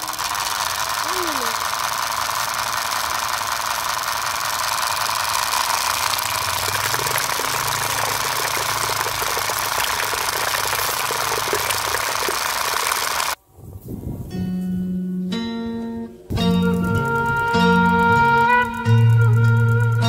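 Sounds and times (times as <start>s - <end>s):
small diesel engine knocking: 0.0s - 13.4s
water splashing into puddle: 4.1s - 13.4s.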